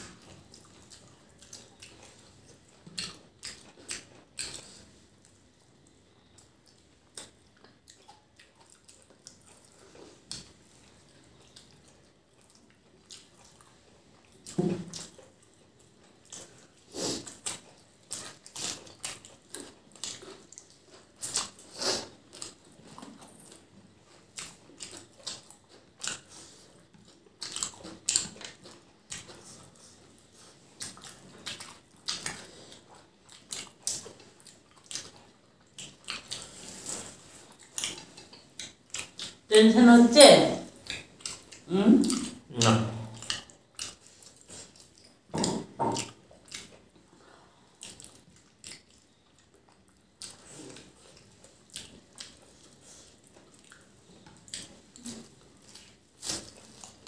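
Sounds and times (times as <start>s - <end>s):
chewing: 0.0s - 39.5s, 40.6s - 57.0s
fingers squishing rice and curry: 0.0s - 39.5s, 40.7s - 57.0s.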